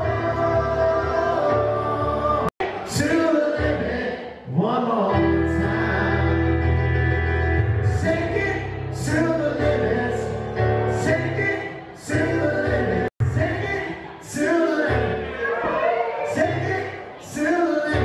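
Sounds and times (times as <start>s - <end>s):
grand piano playing: 0.0s - 2.5s, 5.0s - 13.6s
man singing: 0.0s - 15.2s, 16.3s - 18.0s.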